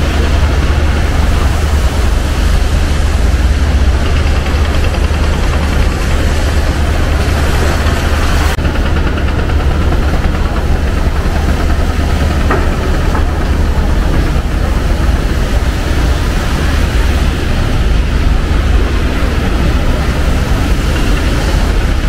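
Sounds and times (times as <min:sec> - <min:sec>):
low rumble of vehicle engines: 0:00.0 - 0:22.0.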